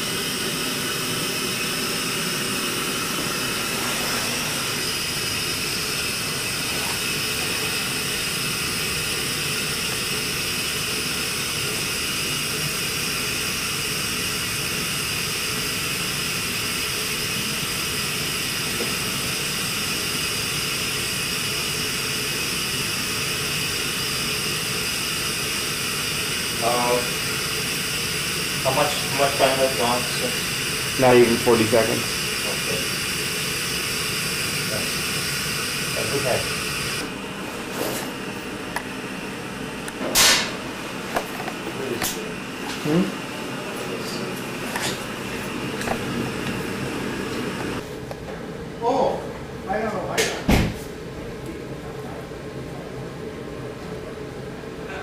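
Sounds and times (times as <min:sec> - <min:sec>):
gas hissing: 0:00.0 - 0:48.2.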